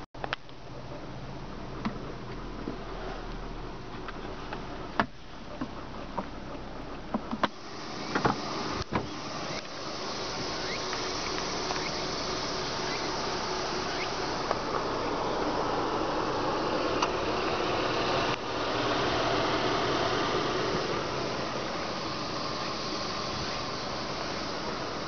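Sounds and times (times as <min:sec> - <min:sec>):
steady hiss: 0:07.4 - 0:25.0.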